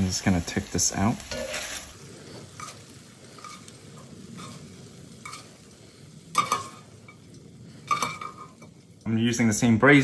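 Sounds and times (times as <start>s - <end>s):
faint sizzle: 0.0s - 10.0s
spatula scraping a pan: 1.1s - 8.8s
spatula clattering against pan: 6.3s - 6.8s, 7.9s - 8.7s.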